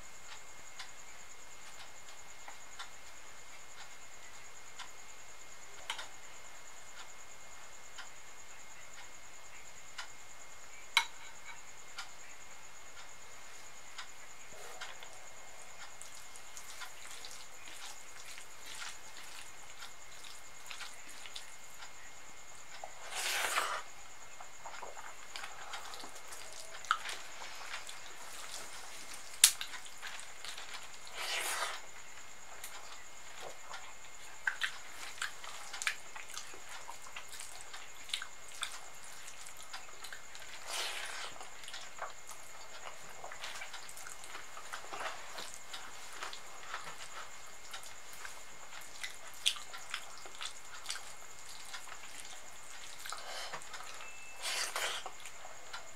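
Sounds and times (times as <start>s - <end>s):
faint hiss: 0.0s - 55.9s
fingers mixing soft food: 14.6s - 55.9s.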